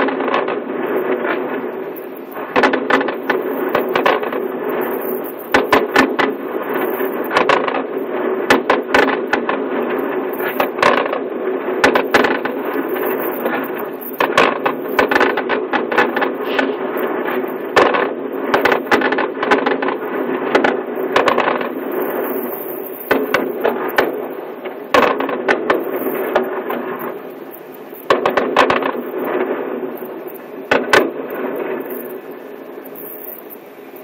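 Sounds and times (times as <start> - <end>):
fireworks bangs and crackles: 0.0 - 34.0
steady background noise: 0.0 - 34.0.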